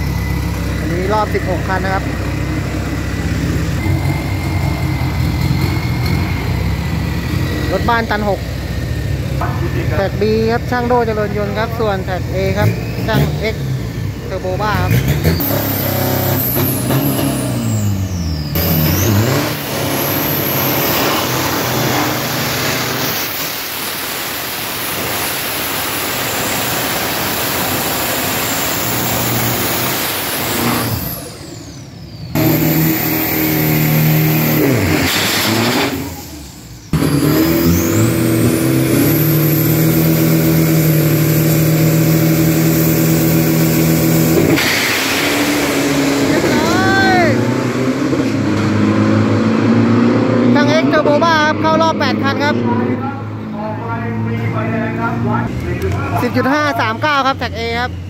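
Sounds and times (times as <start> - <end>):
truck engines revving: 0.0 - 58.0.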